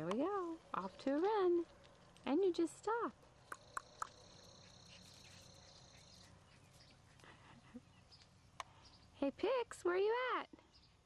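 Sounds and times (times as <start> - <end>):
high-pitched insect trill: 3.6 - 6.2.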